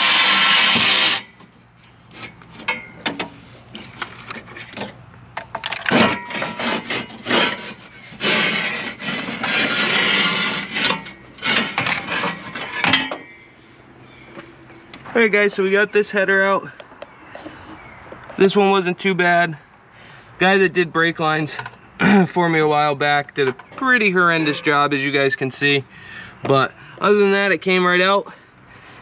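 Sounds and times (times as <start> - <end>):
cordless power tool running: 0.0 - 1.3
metal tube scraping against metal: 5.8 - 13.4.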